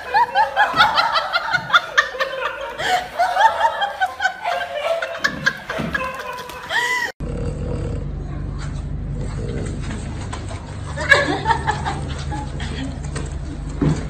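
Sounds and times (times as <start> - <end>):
high-pitched laughter: 0.0 - 7.2.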